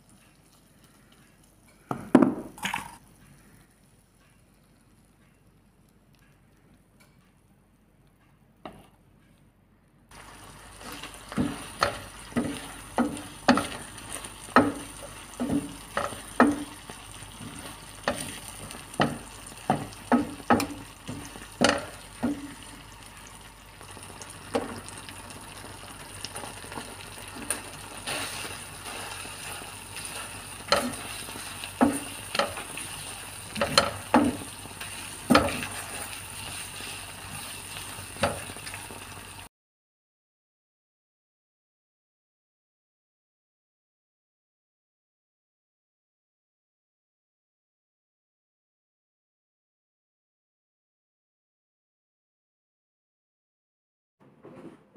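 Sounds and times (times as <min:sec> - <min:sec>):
wooden spoon knocking a pan: 0:01.9 - 0:02.6, 0:10.8 - 0:22.6, 0:29.4 - 0:32.9, 0:33.5 - 0:34.5, 0:35.2 - 0:35.8
sauce sizzling in a frying pan: 0:10.1 - 0:39.5.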